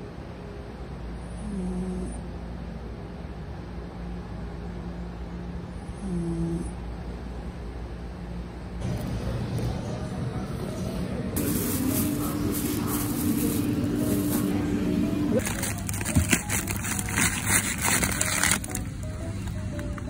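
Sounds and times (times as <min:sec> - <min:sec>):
background music: 0:08.8 - 0:20.0
plastic packaging crinkling: 0:11.4 - 0:14.6, 0:15.4 - 0:19.9.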